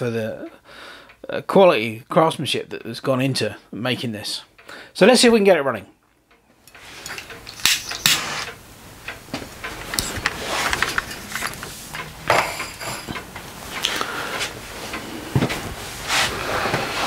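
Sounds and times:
knocks and clicks of handling: 6.7s - 15.8s.

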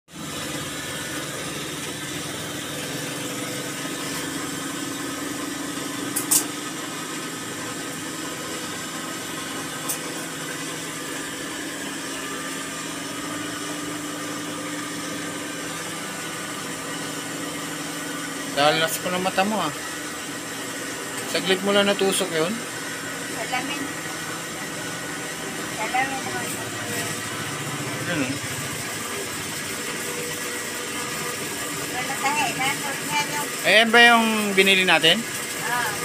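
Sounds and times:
sewing machine running: 25.3s - 36.0s.

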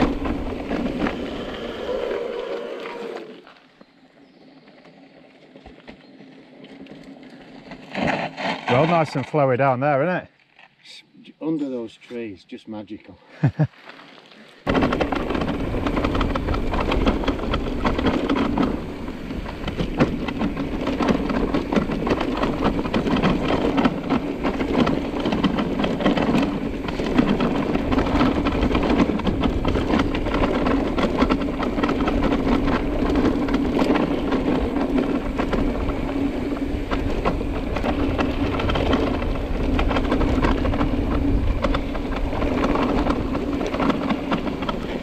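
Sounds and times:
tyre and wind noise: 0.0s - 9.7s, 13.5s - 45.0s
constant low hum: 14.7s - 45.0s
small clicks and rattles: 14.7s - 45.0s.

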